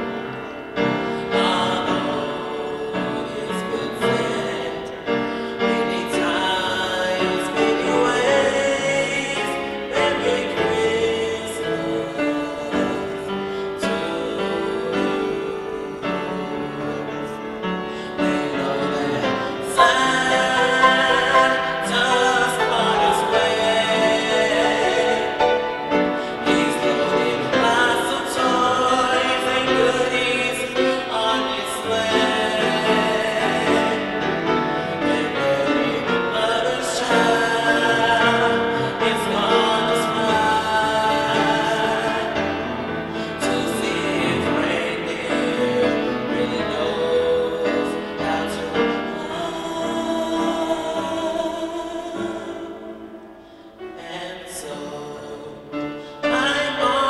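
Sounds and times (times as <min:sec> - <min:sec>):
backing music: 0:00.0 - 0:55.0.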